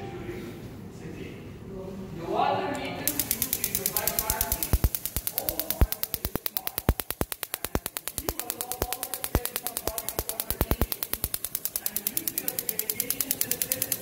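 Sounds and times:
electric sparks snapping: 0:03.1 - 0:14.0.

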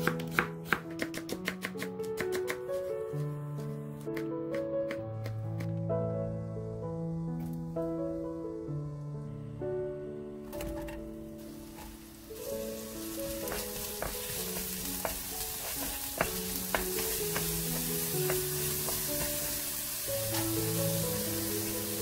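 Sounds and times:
vegetables sizzling in hot oil: 0:11.4 - 0:22.0.

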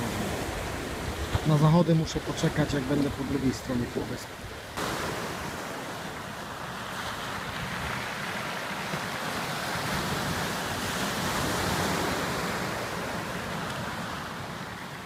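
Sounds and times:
waves breaking on a beach: 0:00.0 - 0:15.0.

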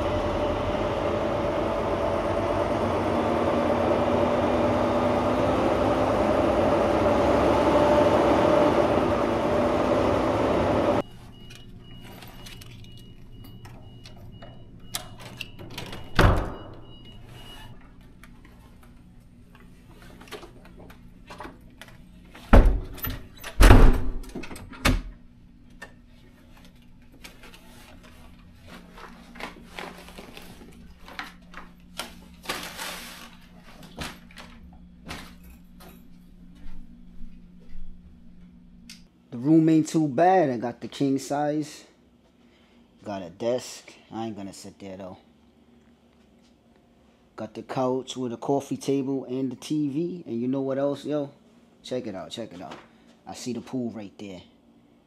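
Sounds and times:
truck engine and road drone: 0:00.0 - 0:11.0.

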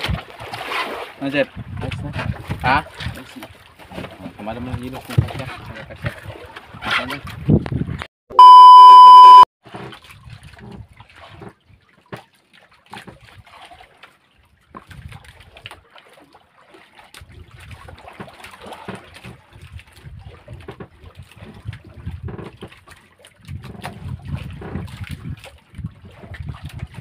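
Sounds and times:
water lapping against boat hull: 0:00.0 - 0:08.1, 0:09.6 - 0:27.0.

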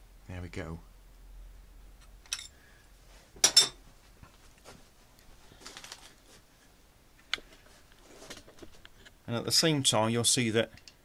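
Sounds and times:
metal tools clinking: 0:02.3 - 0:02.6, 0:03.4 - 0:03.8.

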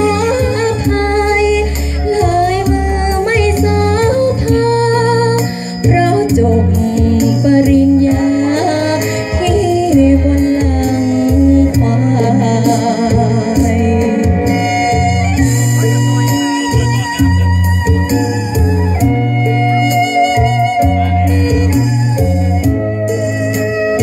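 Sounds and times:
woman singing with vibrato: 0:00.0 - 0:15.4
music with strong bass: 0:00.0 - 0:24.0.

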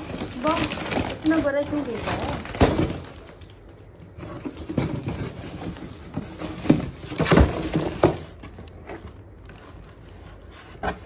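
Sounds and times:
cardboard box rustling: 0:00.0 - 0:11.0
knocks and scrapes on cardboard: 0:10.0 - 0:11.0.

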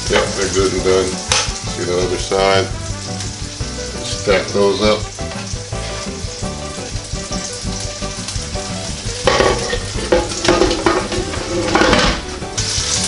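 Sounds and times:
food sizzling in a skillet: 0:00.0 - 0:13.0
glass lid knocking: 0:09.2 - 0:12.2.

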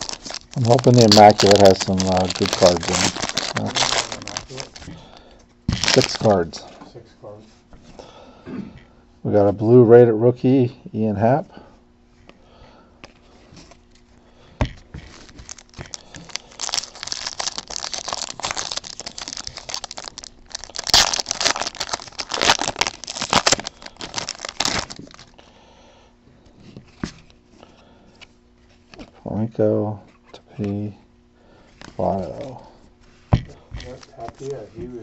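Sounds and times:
foil wrappers crinkling and tearing: 0:00.0 - 0:06.6, 0:15.0 - 0:25.4.

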